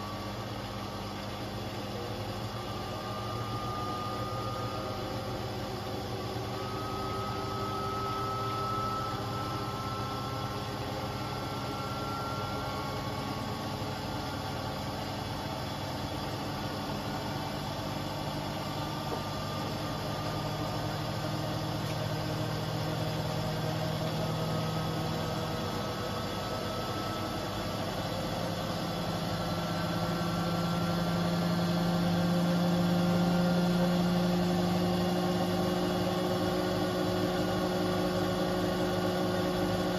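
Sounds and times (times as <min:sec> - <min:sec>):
washing machine spinning: 0:00.0 - 0:39.9.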